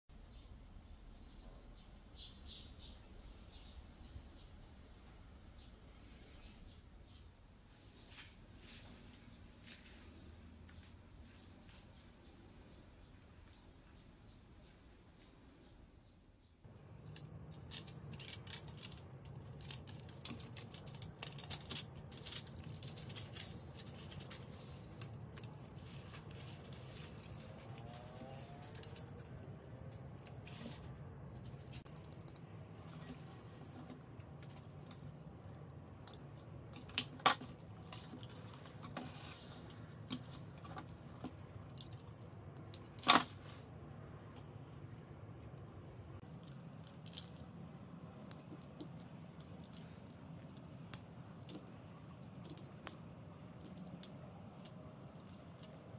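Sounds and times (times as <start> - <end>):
metal wire and plastic rattling: 17.0 - 30.9.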